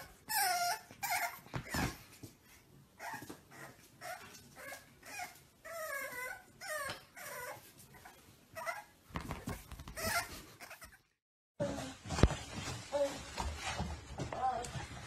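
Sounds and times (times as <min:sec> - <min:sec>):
puppy whining and yipping: 0:00.0 - 0:02.0, 0:03.0 - 0:11.1
puppy scuffling: 0:00.8 - 0:10.9, 0:11.6 - 0:15.0.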